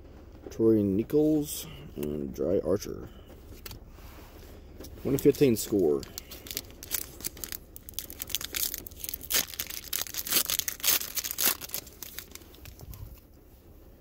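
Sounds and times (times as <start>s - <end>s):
plastic wrapper tearing and crinkling: 5.1s - 13.2s.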